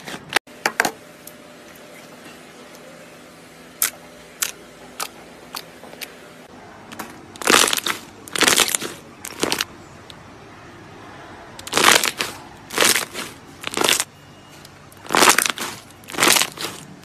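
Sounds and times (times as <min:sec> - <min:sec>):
slime crackling and squelching: 0:07.4 - 0:09.7, 0:11.6 - 0:14.1, 0:14.9 - 0:17.0.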